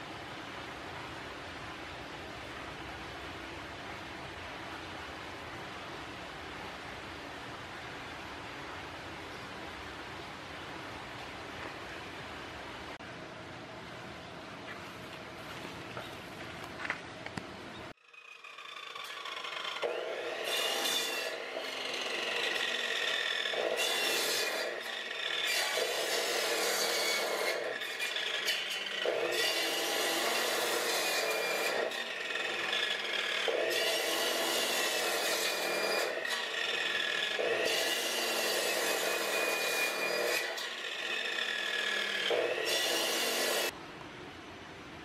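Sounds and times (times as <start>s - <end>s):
circular saw cutting fish and bone: 18.0s - 43.7s
saw motor high whine: 18.0s - 43.7s.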